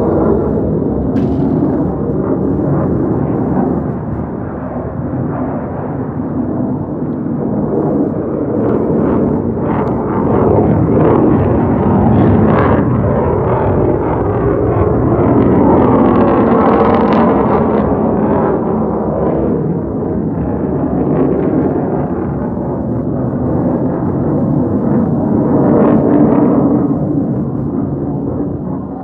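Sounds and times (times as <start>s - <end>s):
jet flying past: 0.0s - 29.0s.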